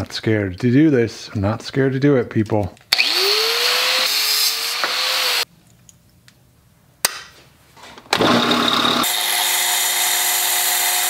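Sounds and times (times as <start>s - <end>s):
belt sander running: 3.0s - 5.4s, 8.1s - 11.0s
angle grinder cutting metal: 3.0s - 5.5s, 8.2s - 11.0s.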